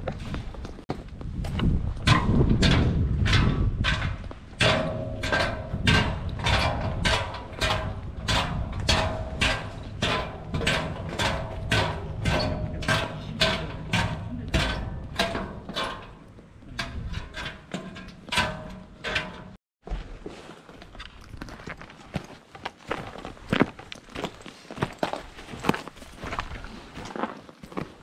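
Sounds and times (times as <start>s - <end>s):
footsteps crunching on trail: 0.0s - 2.1s, 19.8s - 28.0s.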